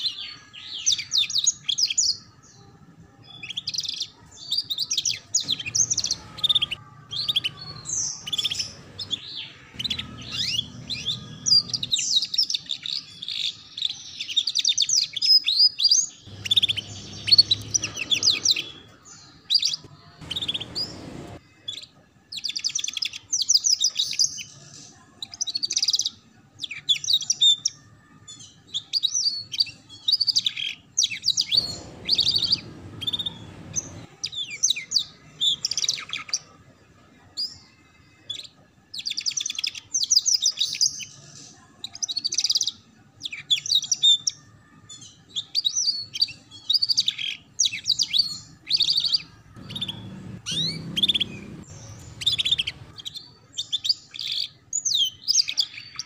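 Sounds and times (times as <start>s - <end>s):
canary singing trills: 0.0s - 56.0s.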